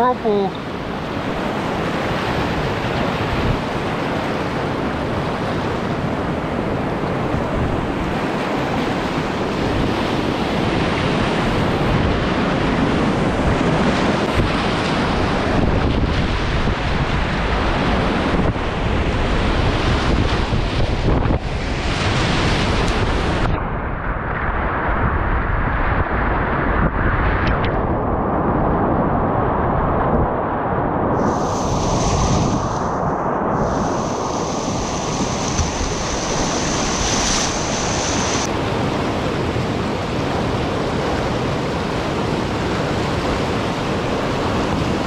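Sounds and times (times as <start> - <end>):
wind buffeting microphone: 0.1 - 45.0
whitewater rapids rushing: 33.6 - 45.0.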